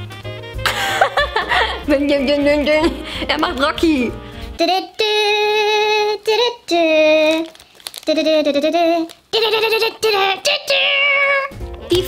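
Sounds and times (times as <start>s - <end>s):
high voice singing wordless tune: 4.5s - 9.3s.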